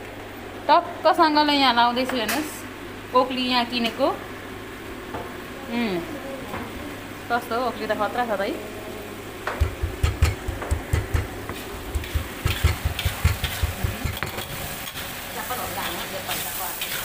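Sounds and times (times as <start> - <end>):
gravy sizzling in a wok: 7.1 - 17.0
pestle pounding in a stone mortar: 9.5 - 14.5
spatula stirring: 9.6 - 15.1.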